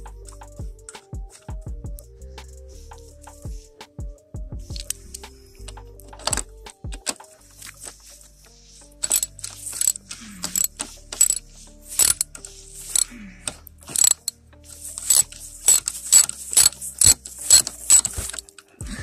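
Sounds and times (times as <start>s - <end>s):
ratchet wrench clicking: 9.0s - 11.4s, 12.0s - 13.1s, 13.9s - 14.3s, 14.9s - 18.6s.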